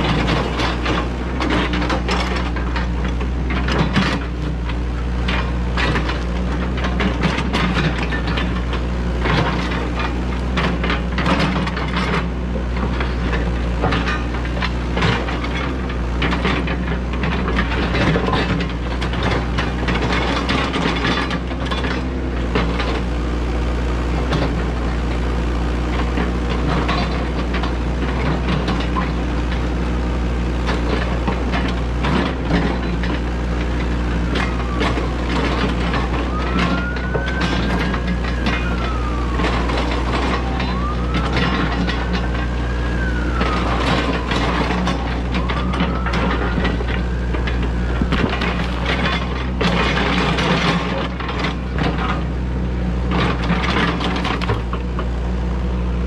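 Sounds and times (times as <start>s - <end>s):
excavator diesel engine running: 0.0s - 56.0s
pitched whine: 30.6s - 51.0s.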